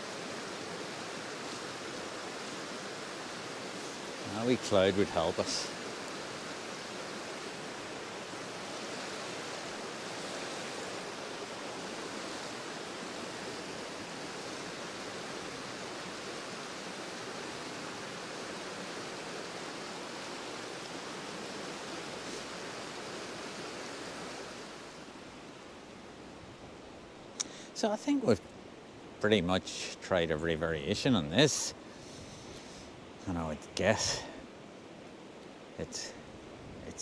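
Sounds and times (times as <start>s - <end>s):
river rapids rushing over rocks: 0.0s - 25.8s.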